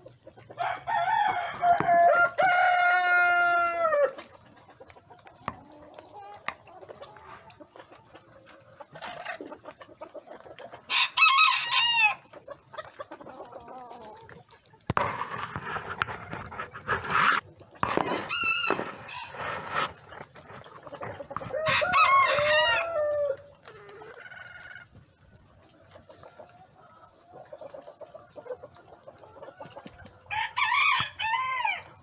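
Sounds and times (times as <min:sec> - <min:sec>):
rooster crowing: 0:00.6 - 0:04.2, 0:10.9 - 0:12.2, 0:18.0 - 0:19.5, 0:21.4 - 0:23.5, 0:30.3 - 0:32.0.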